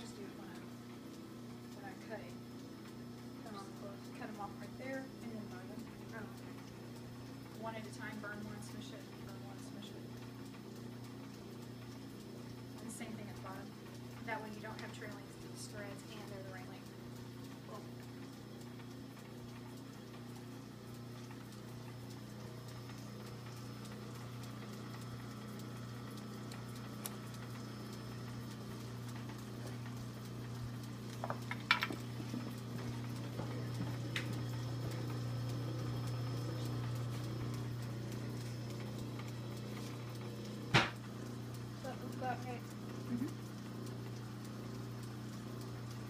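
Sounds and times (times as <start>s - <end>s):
sewing machine running: 22.2s - 40.9s.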